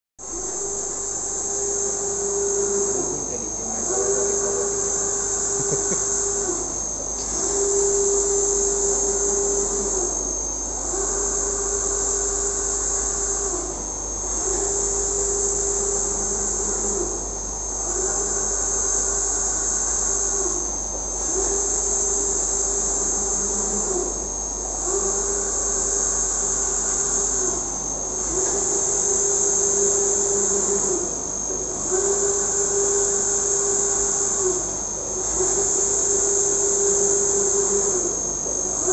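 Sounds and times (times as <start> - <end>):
printer carriage whine: 0.2 - 38.9.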